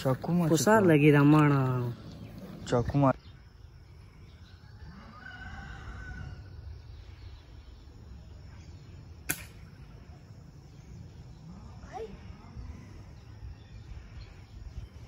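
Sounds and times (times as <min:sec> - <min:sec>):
rooster crowing: 0:04.6 - 0:06.7
air rifle shot: 0:09.2 - 0:09.8.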